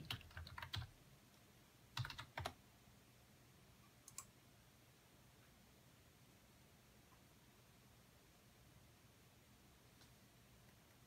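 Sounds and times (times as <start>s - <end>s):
computer keyboard typing: 0.0s - 0.9s, 2.0s - 2.6s, 4.0s - 4.3s.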